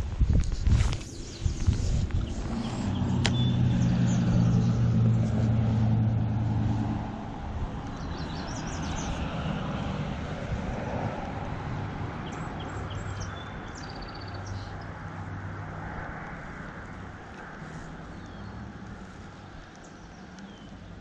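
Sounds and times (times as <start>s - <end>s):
low drone: 0.0s - 20.5s
road traffic passing: 0.0s - 21.0s
small birds chirping: 0.7s - 5.5s, 7.8s - 9.6s, 12.2s - 15.3s, 17.3s - 21.0s.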